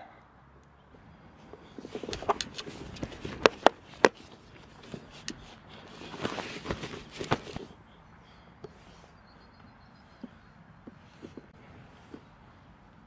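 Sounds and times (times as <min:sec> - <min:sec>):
rustling handling noise: 0:01.4 - 0:07.8.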